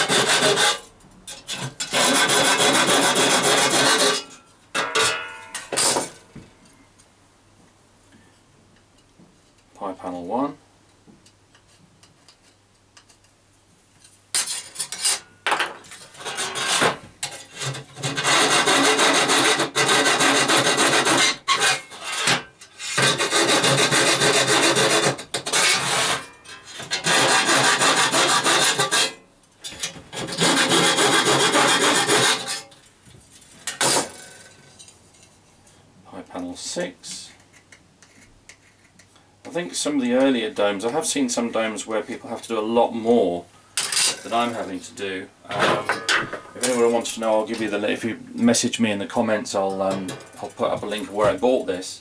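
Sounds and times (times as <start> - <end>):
hand tool cutting metal: 0.0 - 0.9, 1.5 - 5.2, 16.2 - 29.2, 29.8 - 32.7.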